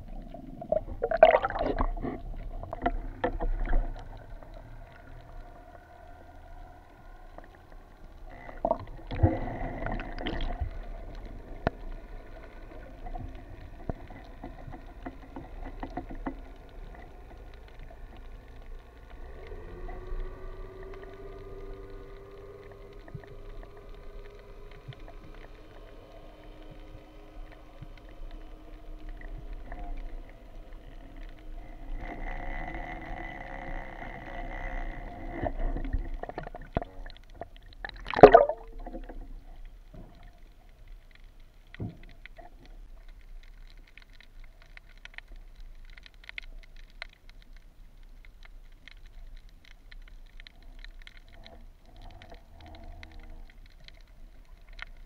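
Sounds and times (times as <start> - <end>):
underwater boat engine hum: 0.0 - 55.0
small clicks: 2.4 - 55.0.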